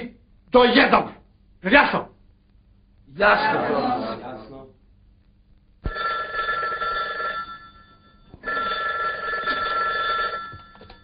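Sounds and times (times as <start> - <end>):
telephone ringing: 5.9 - 11.0.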